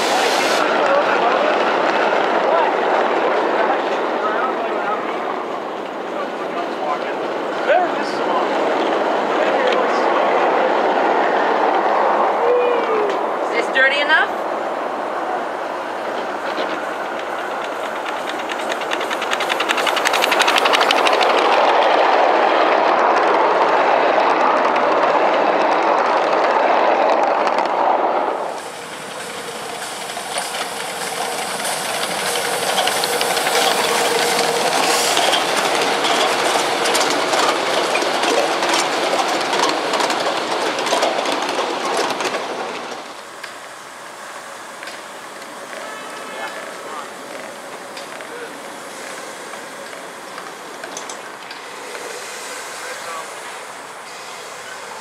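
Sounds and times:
steam locomotive hissing: 0.0s - 55.0s
wheels clicking over rail joints: 15.3s - 27.8s, 28.4s - 55.0s.

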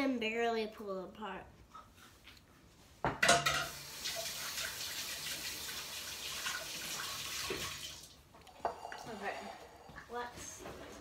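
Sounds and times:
faucet running into sink: 3.4s - 9.2s.

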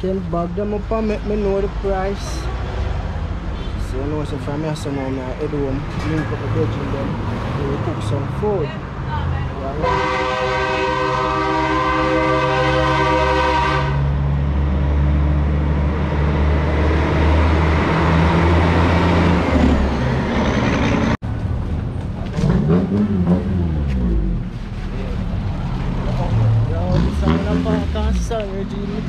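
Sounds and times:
engine rumble: 0.0s - 13.3s, 13.9s - 29.0s
vehicle horn blast: 9.8s - 14.1s.

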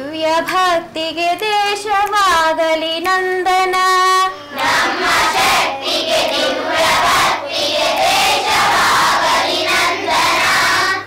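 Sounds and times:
children singing in unison: 4.3s - 11.0s.

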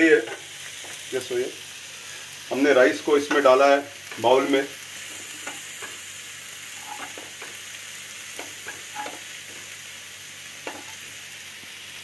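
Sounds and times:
food sizzling in a pan: 0.0s - 12.0s
metal spatula scraping pan: 6.8s - 7.5s, 8.6s - 9.2s.

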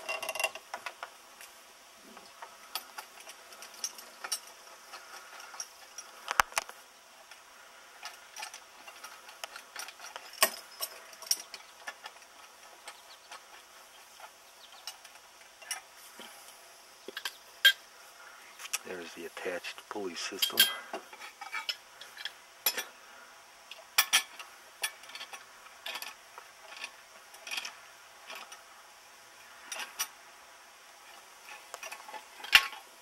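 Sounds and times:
metal hardware clicking and knocking: 0.0s - 1.1s, 8.0s - 15.9s, 20.3s - 22.9s, 31.5s - 32.9s.

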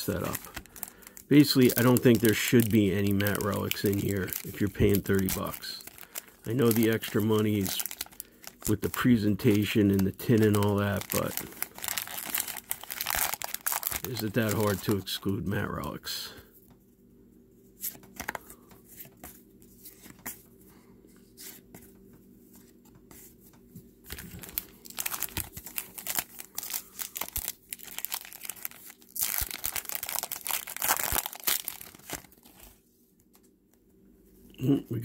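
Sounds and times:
foil wrapper tearing and crinkling: 0.0s - 15.0s, 24.1s - 32.7s.

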